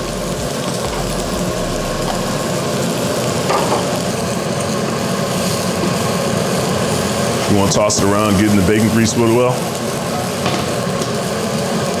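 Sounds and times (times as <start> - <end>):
steady fan hum: 0.0 - 2.8
food sizzling in a frying pan: 2.4 - 12.0.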